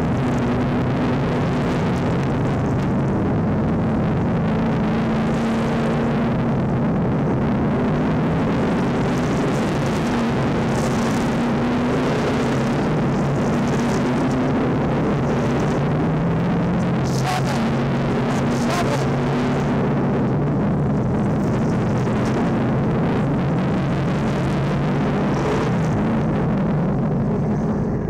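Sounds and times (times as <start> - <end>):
engine droning: 0.0 - 28.0.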